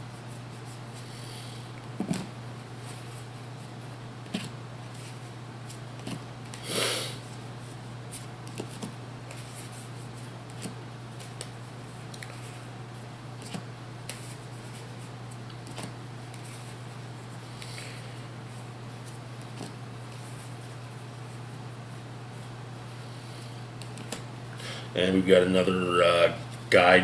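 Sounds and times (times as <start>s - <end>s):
low electrical hum: 0.0s - 27.0s
cards clicking and sliding: 8.2s - 9.8s, 10.5s - 12.5s, 13.4s - 16.7s, 23.8s - 24.2s.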